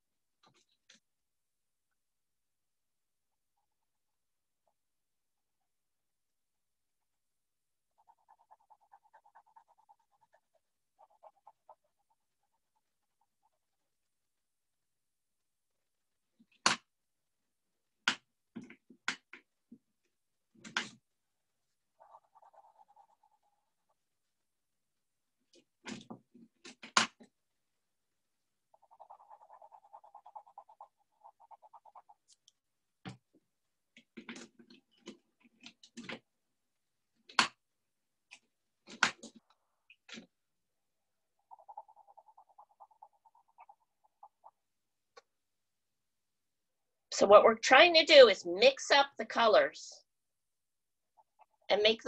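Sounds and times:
colouring strokes on paper: 0:07.0 - 0:16.6, 0:19.8 - 0:26.6, 0:27.3 - 0:33.7, 0:41.2 - 0:44.8.

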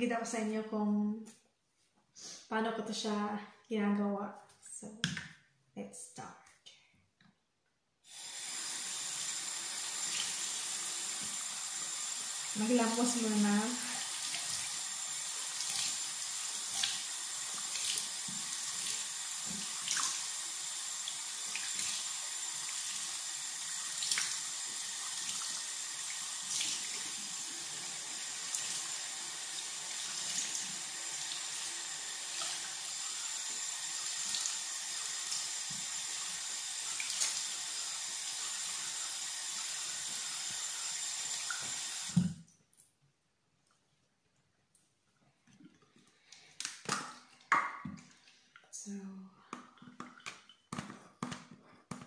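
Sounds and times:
sink tap running: 0:08.1 - 0:42.3.

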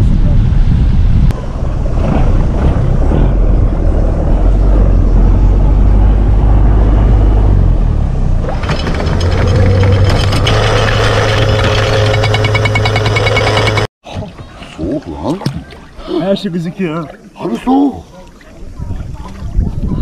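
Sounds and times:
wind rumbling on microphone: 0:00.0 - 0:11.9, 0:18.4 - 0:20.0
motorboat engine running: 0:08.1 - 0:13.9.

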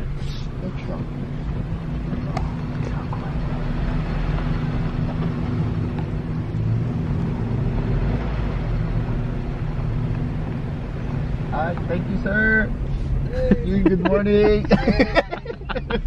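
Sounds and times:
car engine running: 0:00.0 - 0:16.0
tyre and road noise: 0:00.0 - 0:16.0.

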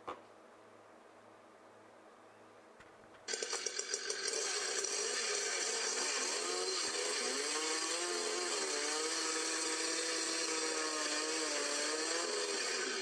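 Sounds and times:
chainsaw engine running: 0:03.3 - 0:13.0.

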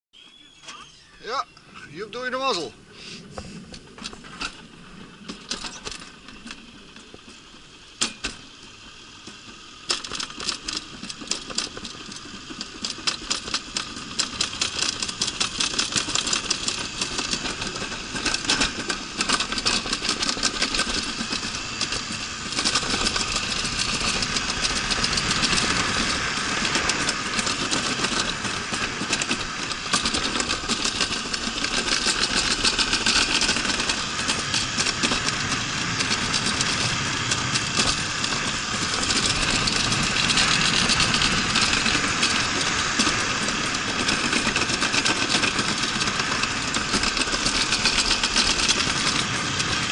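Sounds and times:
sled rattling clicks: 0:03.6 - 0:49.9
rushing noise: 0:13.6 - 0:49.9.

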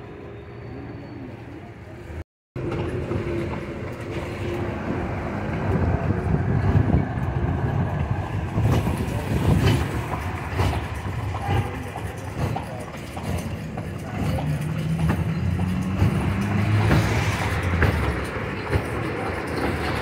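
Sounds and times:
carriage wheels rumbling and rattling: 0:06.0 - 0:20.0.

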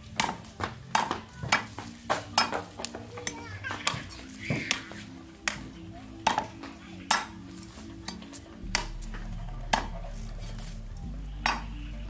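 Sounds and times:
cleaver chopping on wooden block: 0:00.2 - 0:03.0.

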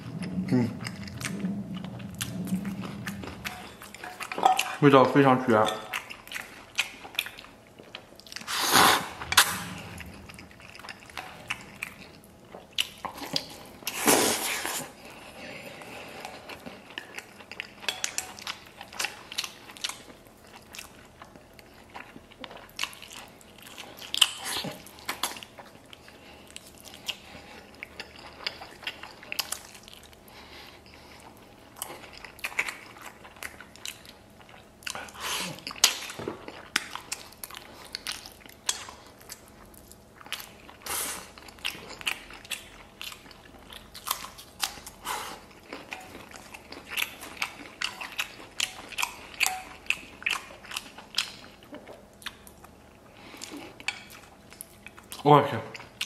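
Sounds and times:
chewing with wet clicks: 0:00.0 - 0:08.5, 0:09.3 - 0:14.0, 0:14.8 - 0:56.0
man slurping noodles: 0:08.5 - 0:10.3.

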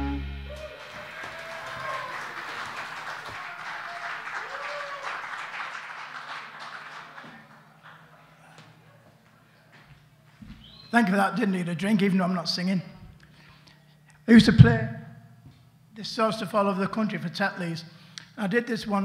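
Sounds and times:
audience applauding: 0:00.5 - 0:08.4.

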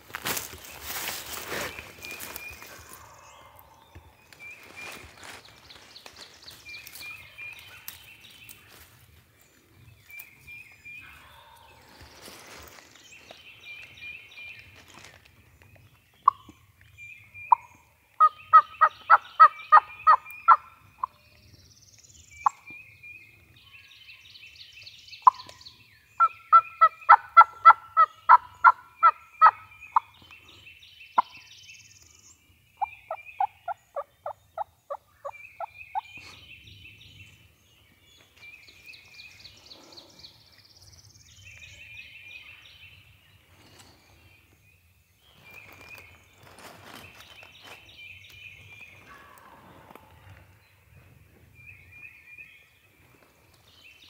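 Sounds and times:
songbird singing: 0:00.0 - 0:54.0
turkey calling: 0:17.5 - 0:21.1, 0:26.2 - 0:30.1.

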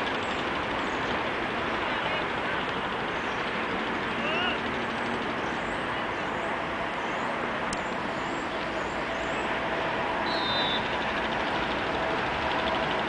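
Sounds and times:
road traffic: 0:00.0 - 0:13.0
short high whistle: 0:10.2 - 0:10.9.

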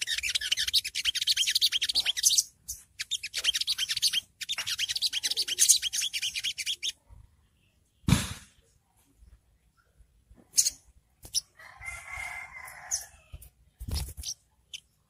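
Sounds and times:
bird high-pitched chirps: 0:00.0 - 0:07.1, 0:10.5 - 0:11.6, 0:12.6 - 0:15.0.

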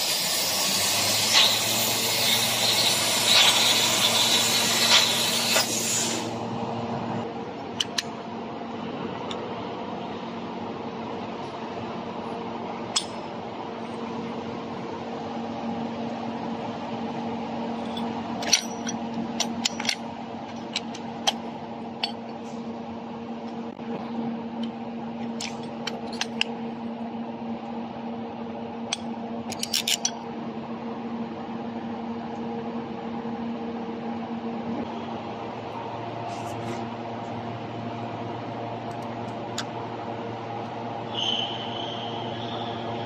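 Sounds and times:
low machine hum: 0:00.0 - 0:43.0
steel pieces clinking on concrete: 0:17.8 - 0:21.4, 0:29.5 - 0:30.2.

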